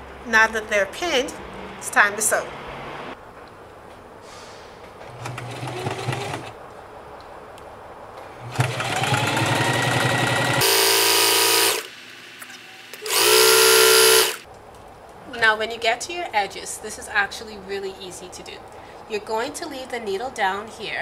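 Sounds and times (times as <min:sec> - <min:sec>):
sewing machine stitching: 0:05.1 - 0:06.6, 0:08.4 - 0:12.0, 0:13.0 - 0:14.4
horn-like buzzing tone: 0:10.6 - 0:11.9, 0:12.6 - 0:14.4.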